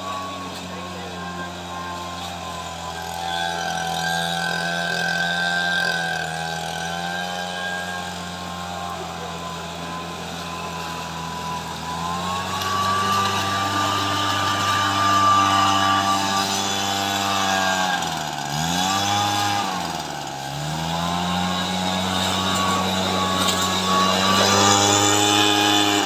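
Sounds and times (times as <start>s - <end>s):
leaf blower engine running: 0.0s - 26.0s.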